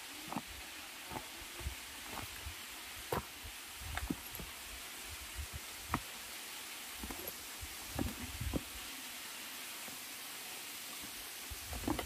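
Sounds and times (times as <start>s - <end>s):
steady hiss: 0.0s - 12.0s
footsteps on rock: 3.1s - 3.3s, 3.9s - 4.5s.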